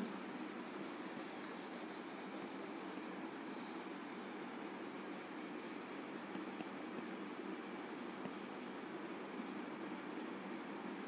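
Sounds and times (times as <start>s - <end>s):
marker scratching on whiteboard: 0.0s - 11.0s.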